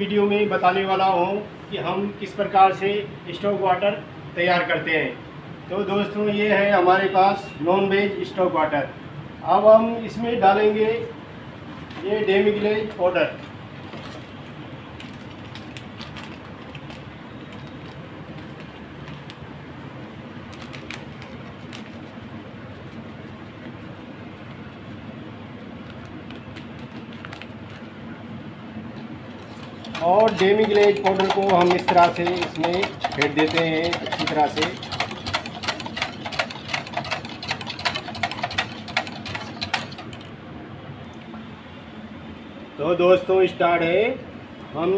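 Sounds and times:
foil sachet crinkling: 0:14.9 - 0:19.4, 0:25.9 - 0:27.9
whisk clicking against metal pan: 0:29.7 - 0:40.2.

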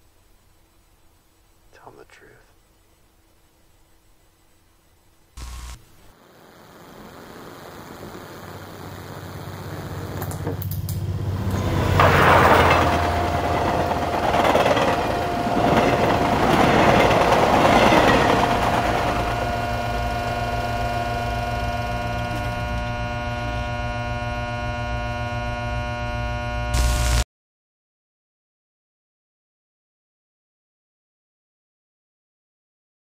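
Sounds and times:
rushing noise with steady tone: 0:00.0 - 0:27.2
short burst of static: 0:05.3 - 0:10.6, 0:11.4 - 0:27.2
many-toned electronic drone: 0:06.7 - 0:27.2.

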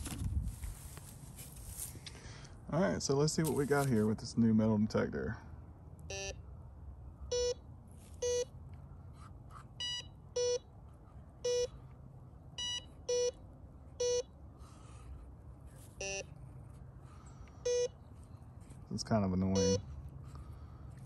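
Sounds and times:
metal detector beeping: 0:06.1 - 0:06.4, 0:07.3 - 0:07.6, 0:08.2 - 0:08.5, 0:09.8 - 0:10.7, 0:11.4 - 0:11.8, 0:12.6 - 0:13.4, 0:14.0 - 0:14.4, 0:16.0 - 0:16.4, 0:17.6 - 0:18.0, 0:19.4 - 0:19.9.

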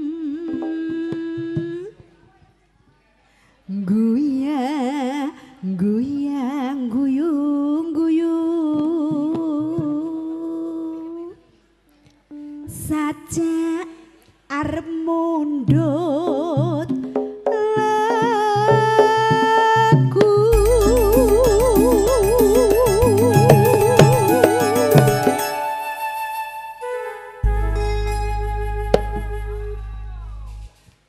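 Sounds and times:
woman singing with vibrato: 0:00.0 - 0:02.0, 0:03.7 - 0:11.4, 0:12.7 - 0:16.9, 0:17.5 - 0:26.8
low held instrumental notes: 0:20.6 - 0:30.7.

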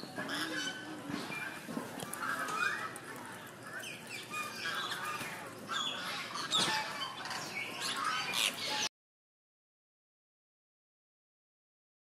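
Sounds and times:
birds chirping and squawking: 0:00.0 - 0:08.9.

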